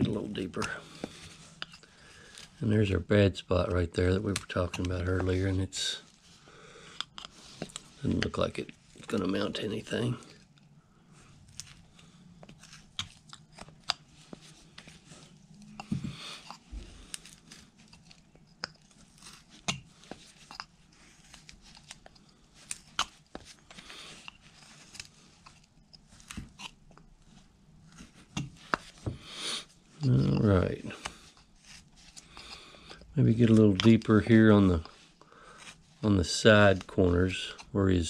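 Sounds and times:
knife carving wood: 0:04.2 - 0:06.2, 0:11.5 - 0:27.2, 0:30.0 - 0:36.1, 0:36.7 - 0:38.0.

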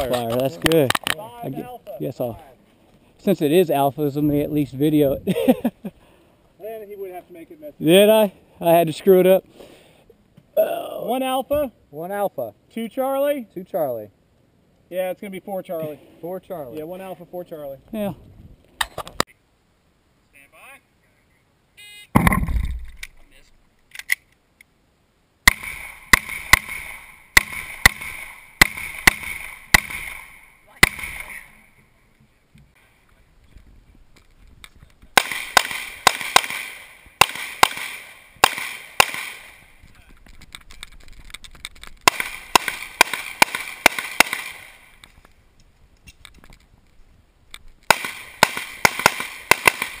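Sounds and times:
pistol shots: 0:25.5 - 0:31.5, 0:35.2 - 0:39.7, 0:42.0 - 0:45.0, 0:47.9 - 0:50.0.

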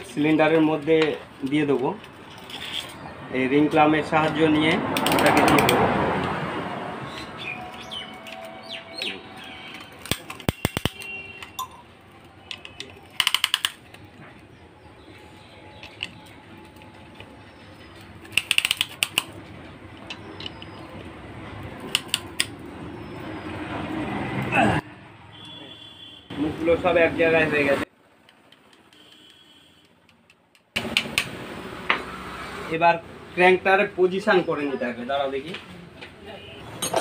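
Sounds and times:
ratchet clicking: 0:13.2 - 0:13.8, 0:18.2 - 0:19.3.

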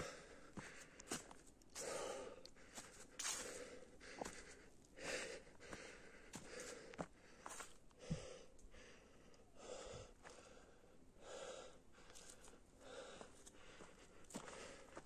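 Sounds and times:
person breathing heavily: 0:00.0 - 0:15.0
footsteps on leaf-covered dirt: 0:03.2 - 0:03.6.

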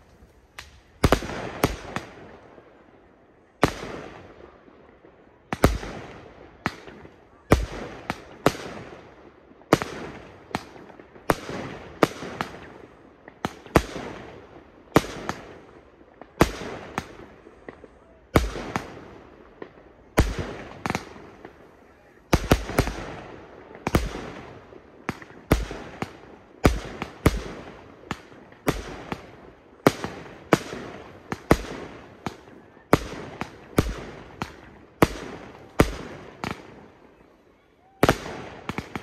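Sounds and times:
fireworks bursting: 0:00.0 - 0:03.0, 0:03.6 - 0:39.0.

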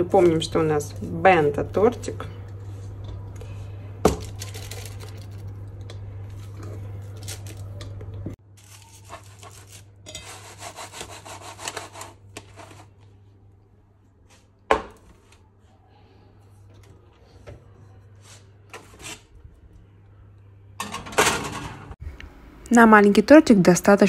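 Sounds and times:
aluminium foil crinkling: 0:04.1 - 0:13.0
low hum: 0:15.4 - 0:23.6.

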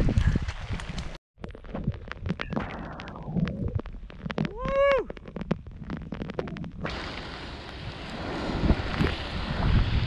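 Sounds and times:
rain ticking on microphone: 0:00.0 - 0:10.0
wind gust on microphone: 0:05.8 - 0:10.0.

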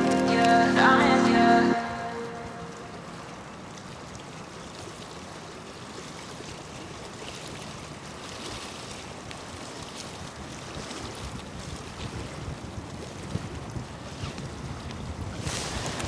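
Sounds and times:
wind and water rushing: 0:00.0 - 0:16.0
wind buffeting microphone: 0:09.4 - 0:16.0.

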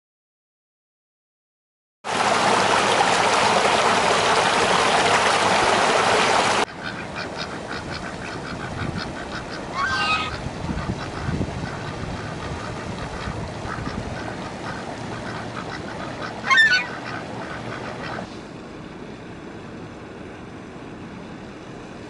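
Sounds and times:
water gushing over rocks: 0:02.1 - 0:06.7
ducks quacking: 0:06.7 - 0:18.3.

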